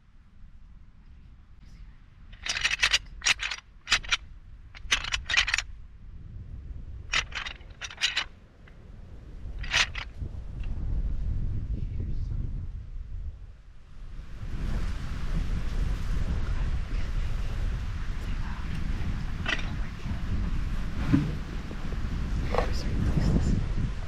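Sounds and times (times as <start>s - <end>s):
low wind rumble: 0.0s - 24.0s
sharp clicks and scrapes: 2.3s - 5.7s, 7.1s - 8.3s, 9.6s - 10.2s, 19.4s - 20.0s.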